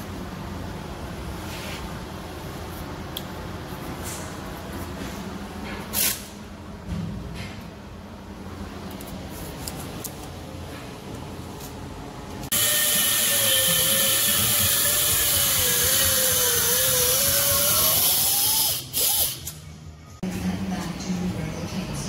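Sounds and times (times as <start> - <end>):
pneumatic cut-off wheel cutting metal: 12.5 - 19.6.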